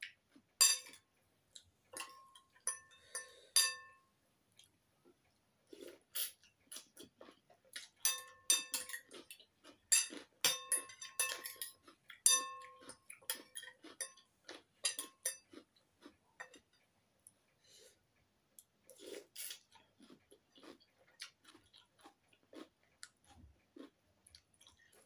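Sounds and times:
cutlery clinking on ceramic bowl: 0:00.6 - 0:01.0, 0:01.9 - 0:04.1, 0:07.8 - 0:15.6.

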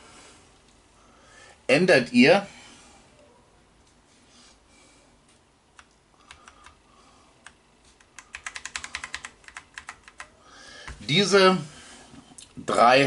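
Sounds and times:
computer keyboard key presses: 0:05.8 - 0:06.8, 0:07.4 - 0:10.3.

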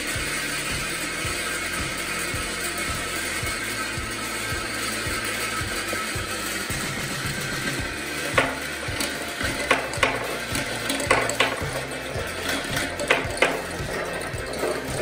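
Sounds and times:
marbles rolling in metal funnel: 0:00.0 - 0:15.0
marbles clacking on wooden board: 0:06.8 - 0:15.0.

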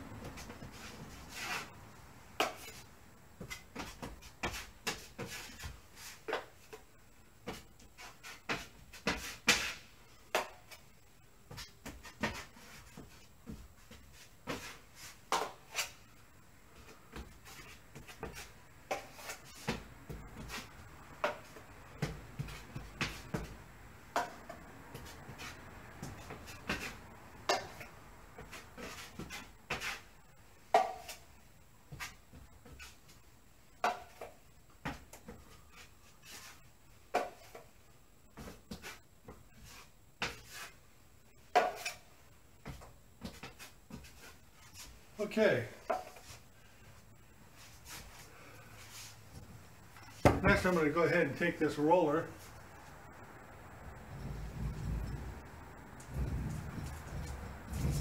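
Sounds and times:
drywall knife slapping and scraping: 0:00.3 - 0:01.8, 0:02.4 - 0:06.8, 0:07.4 - 0:10.9, 0:11.5 - 0:13.2, 0:13.8 - 0:16.1, 0:16.8 - 0:23.5, 0:24.2 - 0:30.1, 0:38.4 - 0:39.0, 0:39.6 - 0:40.8, 0:41.5 - 0:42.1.

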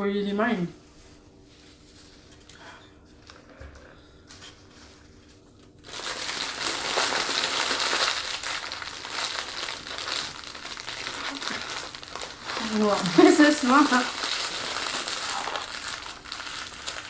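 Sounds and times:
faint steady hum: 0:00.0 - 0:17.0
paper wrapper crinkling: 0:04.2 - 0:17.0.

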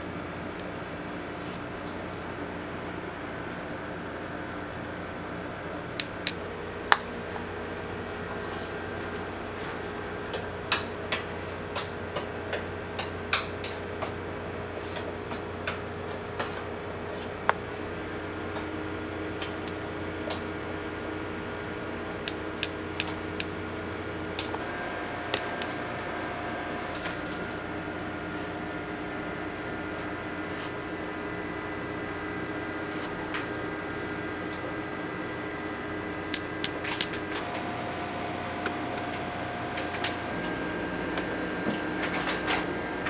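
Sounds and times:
steady background hum: 0:00.0 - 0:43.0.

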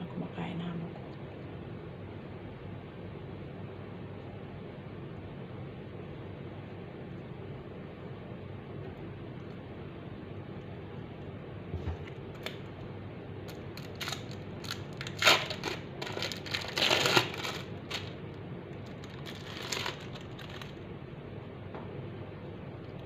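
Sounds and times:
plastic wrapper crinkling: 0:13.5 - 0:18.2, 0:18.8 - 0:20.8.

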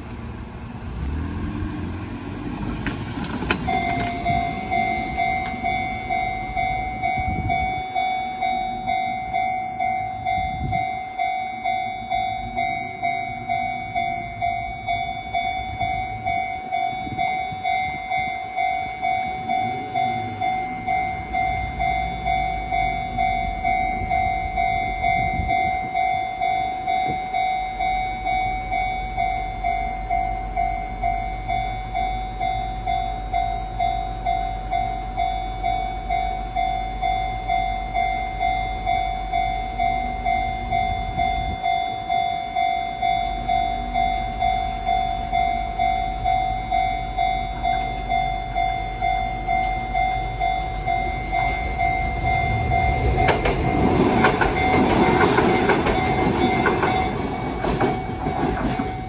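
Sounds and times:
level crossing warning bell: 0:02.8 - 0:59.0
low rumble: 0:43.0 - 0:58.1.

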